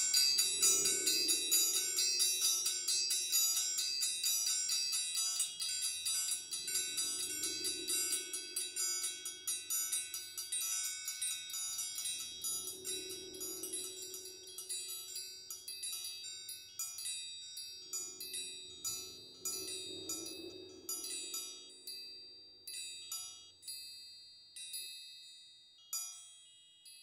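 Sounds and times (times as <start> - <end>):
low ringing tone: 0.0 - 16.8, 17.6 - 23.4
triangles ringing: 0.0 - 27.0.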